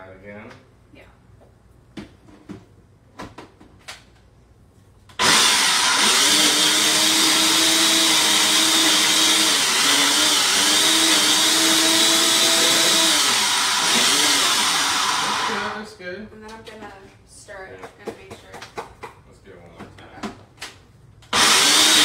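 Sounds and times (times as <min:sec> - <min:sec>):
blender running: 0:05.1 - 0:15.9, 0:21.3 - 0:22.0.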